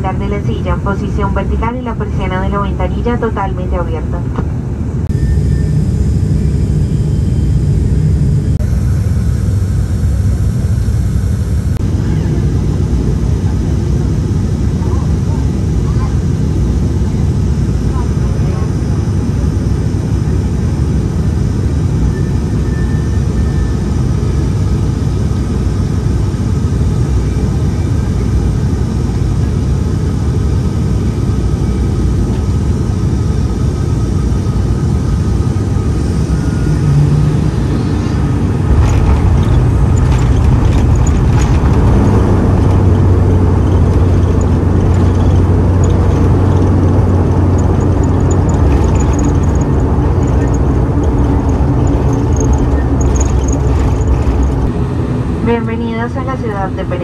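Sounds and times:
propeller engine drone: 0.0s - 57.0s
wheels touching down rattling: 38.7s - 54.7s.

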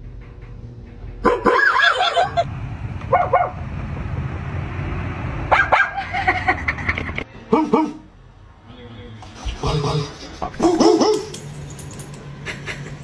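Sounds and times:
dog barking and yipping: 1.2s - 2.4s, 3.1s - 3.6s, 5.5s - 6.1s, 10.6s - 11.4s.

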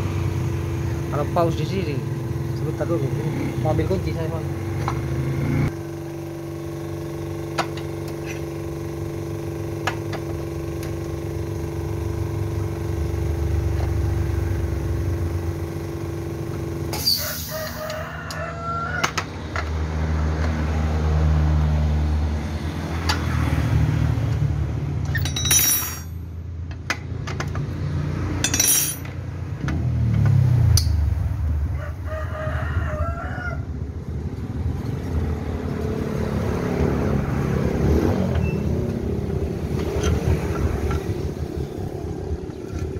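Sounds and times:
rooster crowing: 17.0s - 19.3s, 31.6s - 33.9s
metallic clinks of hand tools: 25.1s - 26.2s, 28.4s - 29.1s
low engine hum: 26.0s - 42.9s.

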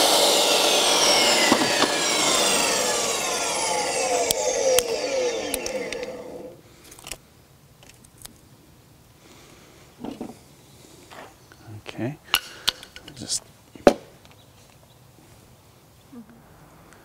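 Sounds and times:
saw motor whine coasting down: 0.0s - 6.6s.

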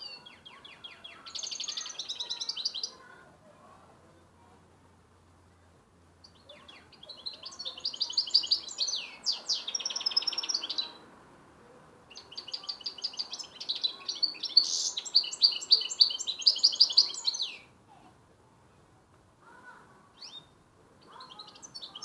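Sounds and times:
bird singing trills and twitters: 0.0s - 3.0s, 6.2s - 11.0s, 12.1s - 17.8s, 20.2s - 22.0s.

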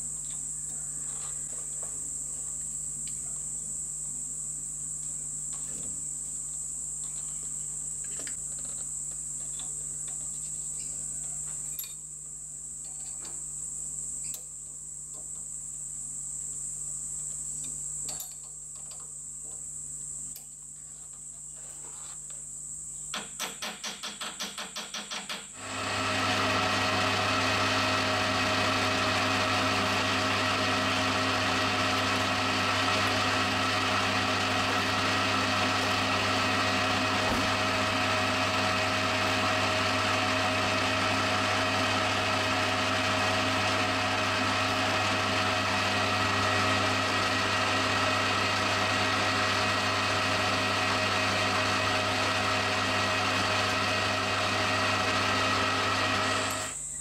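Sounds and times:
metal lathe running: 25.6s - 56.8s.

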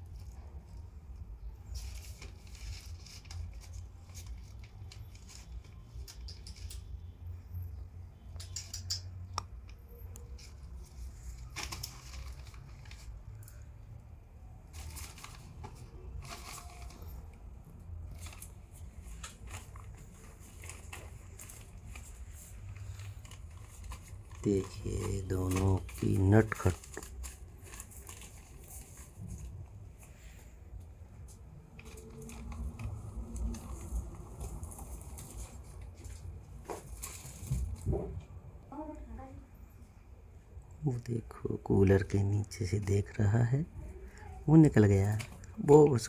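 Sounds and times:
plastic crinkling and rustling: 0.0s - 7.1s, 9.8s - 38.3s, 44.5s - 46.0s.

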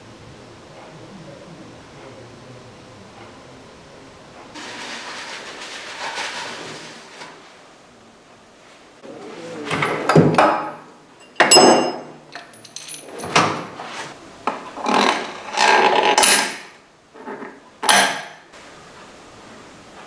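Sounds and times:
metal hand tools clanking: 9.7s - 13.5s.

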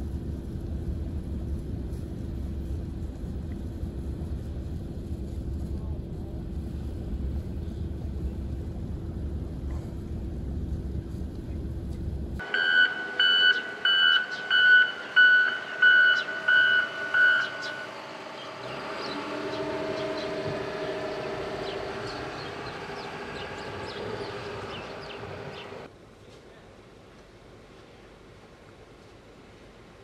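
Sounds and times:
engine running: 0.0s - 25.9s
vehicle back-up alarm beeping: 12.4s - 19.2s.

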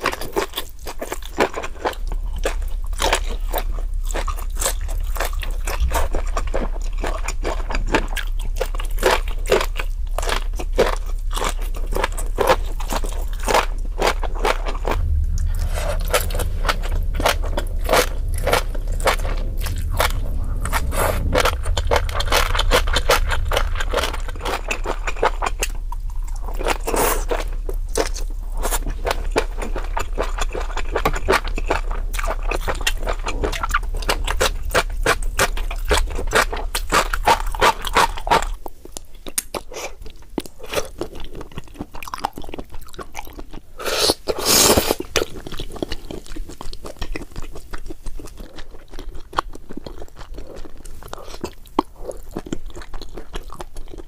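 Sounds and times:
crunchy chewing: 0.0s - 54.0s
low hum: 1.7s - 39.2s.

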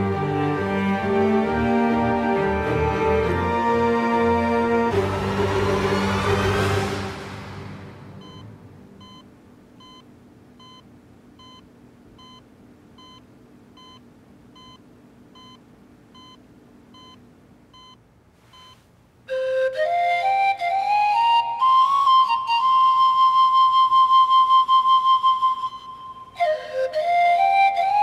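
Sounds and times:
background music: 0.0s - 9.0s, 19.3s - 28.0s
patient monitor beeping: 8.2s - 14.0s, 14.6s - 14.8s, 15.4s - 15.6s, 16.2s - 18.0s, 18.6s - 18.8s.

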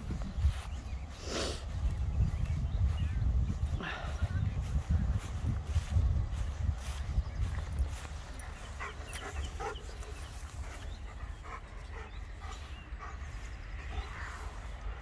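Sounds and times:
steady low rumble: 0.0s - 15.0s
dog panting: 8.0s - 15.0s.

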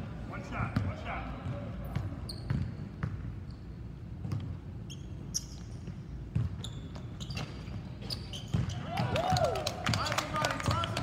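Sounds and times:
sneaker squeaks: 0.7s - 9.1s
basketball bouncing on wooden floor: 1.9s - 3.3s, 4.2s - 4.6s, 5.8s - 9.4s.

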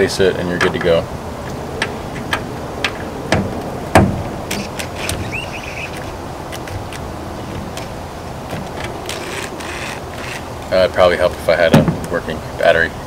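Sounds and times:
steady background hiss: 0.0s - 13.0s
cordless drill clicks: 8.8s - 10.4s.

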